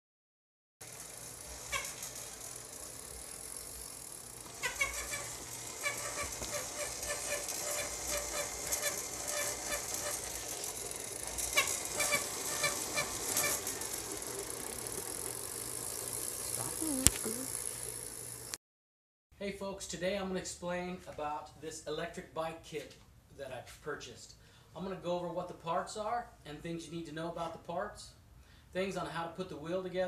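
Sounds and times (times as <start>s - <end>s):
electric motor whirring: 0.8s - 18.6s.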